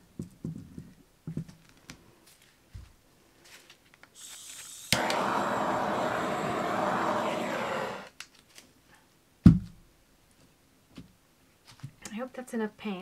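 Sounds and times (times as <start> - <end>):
torch lighting click: 4.2 - 8.0
gas hissing: 4.2 - 8.1
gas flame burning: 4.7 - 8.1.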